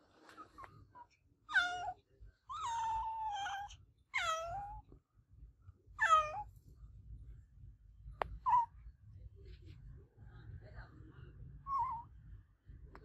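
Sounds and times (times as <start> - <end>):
cat meowing: 1.5 - 4.8, 6.0 - 6.5.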